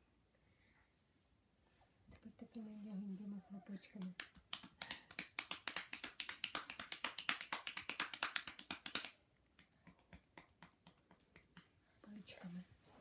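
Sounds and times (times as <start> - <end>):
hands patting bare back: 3.9 - 11.8.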